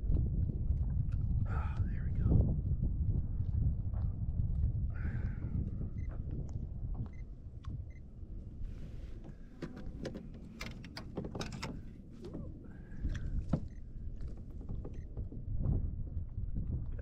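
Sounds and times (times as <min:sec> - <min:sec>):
wind rumbling on microphone: 0:00.0 - 0:17.0
small clicks and knocks: 0:09.2 - 0:11.9.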